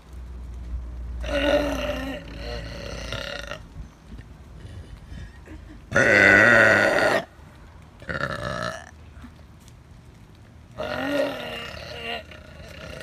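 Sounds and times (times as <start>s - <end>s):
woman burping loudly: 5.9s - 7.3s.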